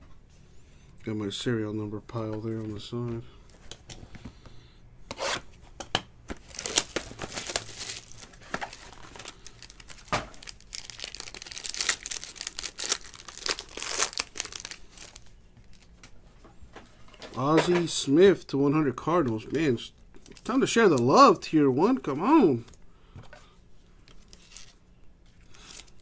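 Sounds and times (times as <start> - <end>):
foil wrapper tearing and crinkling: 6.4 - 15.9.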